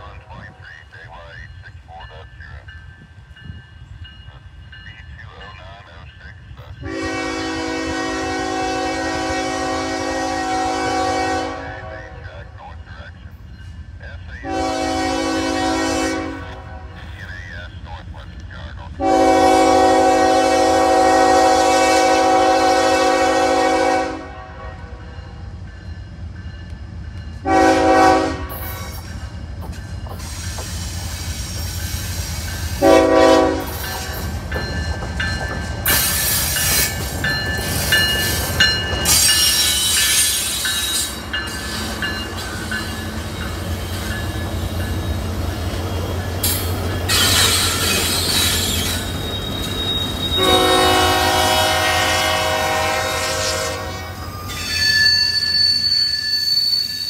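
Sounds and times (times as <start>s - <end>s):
train engine rumble: 0.0s - 57.0s
locomotive air horn blasts: 6.8s - 12.2s, 14.4s - 17.0s, 19.0s - 25.0s, 27.4s - 28.9s, 32.8s - 33.8s, 50.3s - 54.2s
metallic squealing of train cars: 28.5s - 51.4s, 53.9s - 57.0s.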